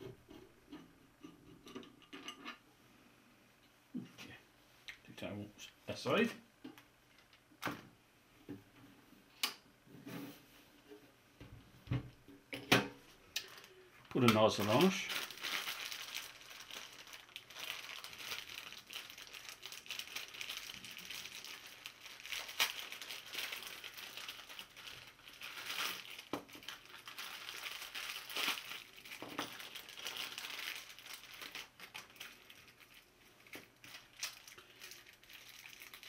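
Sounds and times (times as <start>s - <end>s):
plastic bag crinkling: 13.4s - 36.0s.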